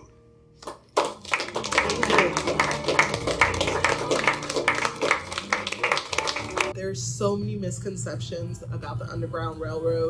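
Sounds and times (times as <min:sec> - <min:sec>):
people applauding: 0:00.6 - 0:06.7.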